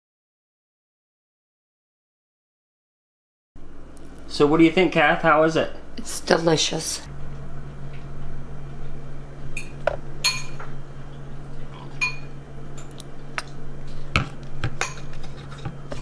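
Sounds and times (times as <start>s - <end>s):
low hum: 3.6s - 16.0s
fork clinking against ceramic bowl: 9.6s - 10.6s, 12.0s - 12.3s.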